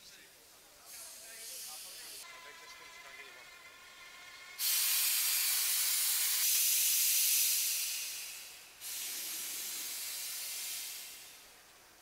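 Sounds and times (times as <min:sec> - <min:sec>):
steam vents hissing: 0:00.7 - 0:12.0.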